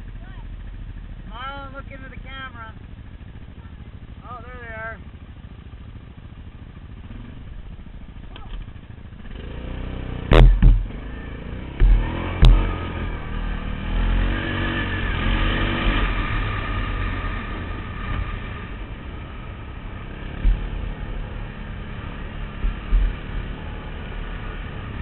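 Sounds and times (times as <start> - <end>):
quad engine revving: 6.9 - 25.0
sharp knocks: 10.3 - 11.0, 11.7 - 12.8, 20.4 - 21.0.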